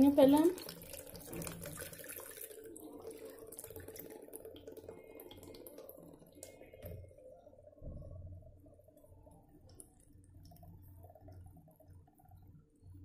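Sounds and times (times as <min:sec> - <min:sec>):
milk pouring into jar: 0:00.1 - 0:07.8.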